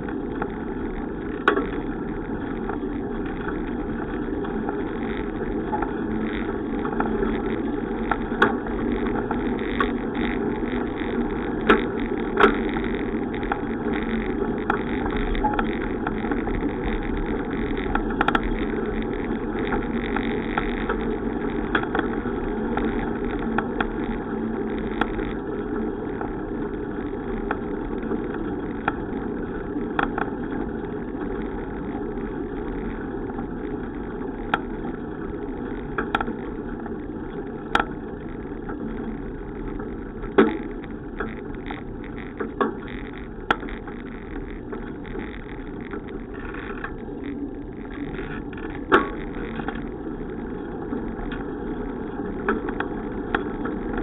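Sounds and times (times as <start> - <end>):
sharp clicks and knocks: 0.0 - 25.4, 29.9 - 30.4, 35.6 - 51.6, 52.3 - 54.0
bicycle rolling noise: 0.0 - 54.0.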